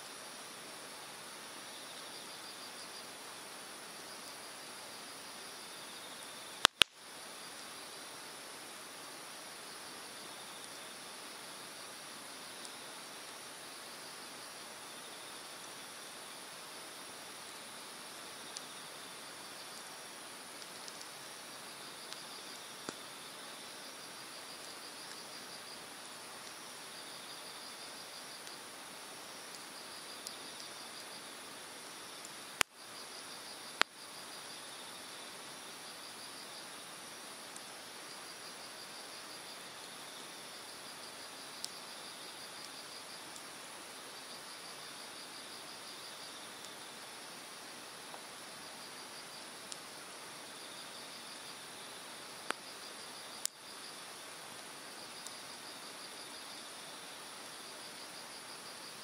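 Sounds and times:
fire popping: 6.6 - 7.0, 20.4 - 21.4
fire crackling and popping: 6.6 - 7.1, 12.2 - 13.6, 17.3 - 26.9, 28.2 - 30.8, 41.5 - 41.8, 47.2 - 48.3, 49.0 - 50.0, 52.4 - 55.4
insects trilling: 9.6 - 36.8, 37.5 - 59.0.

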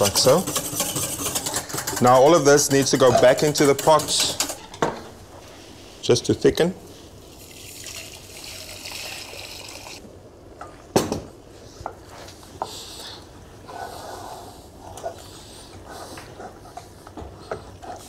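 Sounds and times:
wooden spoon stirring in pot: 0.0 - 5.8
liquid pouring into saucepan: 7.2 - 10.0.

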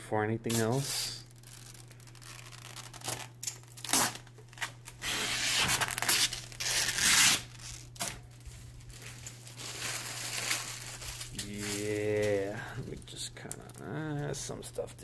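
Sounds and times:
plastic film peeling: 0.5 - 14.9.

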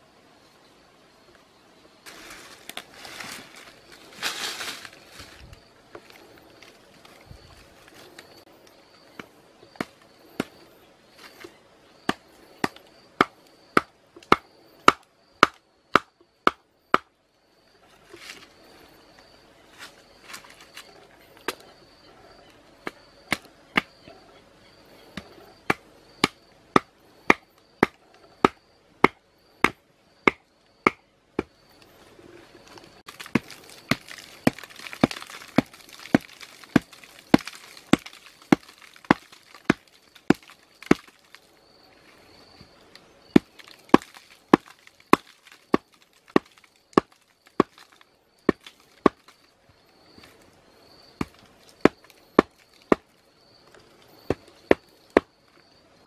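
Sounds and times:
stick pounding bamboo stake: 12.1 - 17.1, 25.2 - 31.5, 33.1 - 41.1, 43.4 - 47.8.

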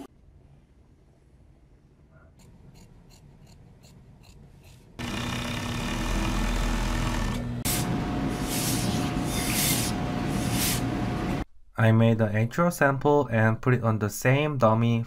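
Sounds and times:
sewing machine humming: 5.0 - 8.3
steam iron hissing: 7.6 - 11.3.

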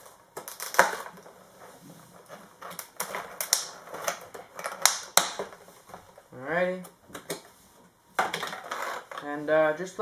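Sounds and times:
plastic packaging crackling and snapping: 0.0 - 1.3, 2.2 - 5.6.

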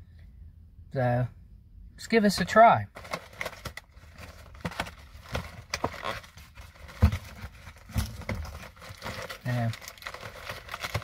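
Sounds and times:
cardboard box crackling and rustling: 3.0 - 11.0.

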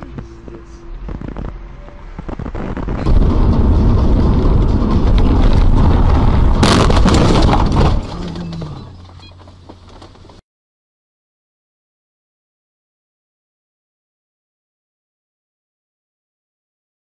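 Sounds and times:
engine and road noise: 0.0 - 10.4
car crash impact: 2.3 - 10.3.

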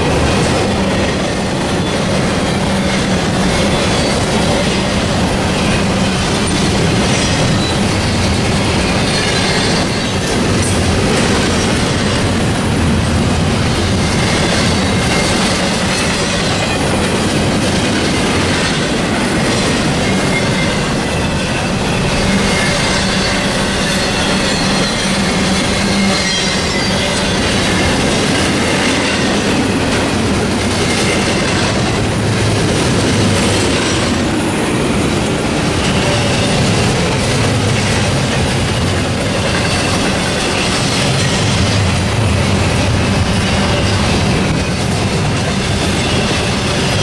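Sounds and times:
train wheels rumbling and clattering: 0.0 - 47.0
high wheel squeal: 1.8 - 10.4, 19.3 - 29.7, 35.6 - 37.7.

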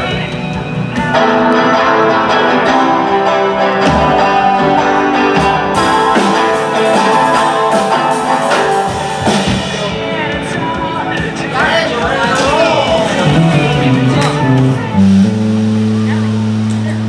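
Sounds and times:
bass guitar: 0.0 - 17.0
electric guitars ringing chords: 0.0 - 17.0
drum and cymbal hits: 5.4 - 17.0.

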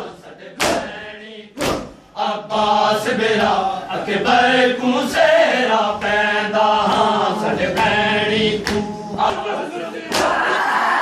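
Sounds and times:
men chanting a lament: 0.0 - 11.0
chest-beating slaps: 0.6 - 0.9, 1.6 - 2.0, 8.6 - 8.9, 10.1 - 10.4.

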